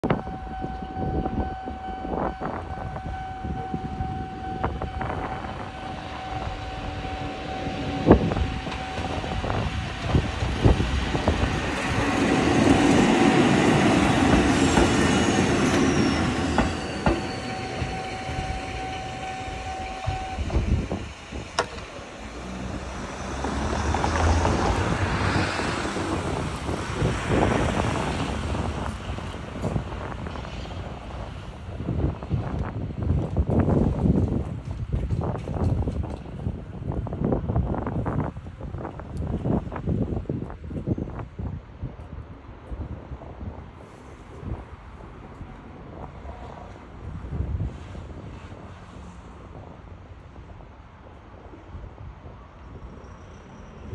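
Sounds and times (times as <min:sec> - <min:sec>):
crossing warning bell: 0:00.0 - 0:24.0
train rumble: 0:00.0 - 0:53.9.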